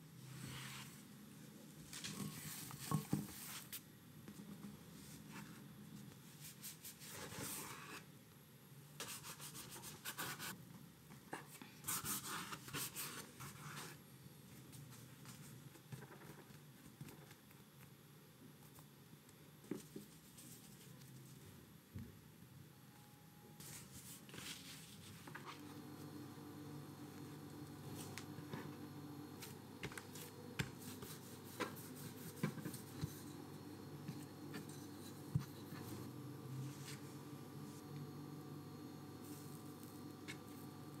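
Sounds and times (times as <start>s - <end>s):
dough rubbing and scraping on board: 29.8s - 33.4s.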